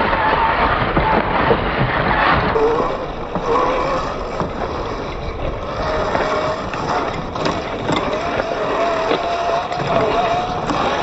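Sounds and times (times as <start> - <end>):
tyres rushing in dirt: 0.0 - 11.0
rc car motor whine: 2.6 - 11.0.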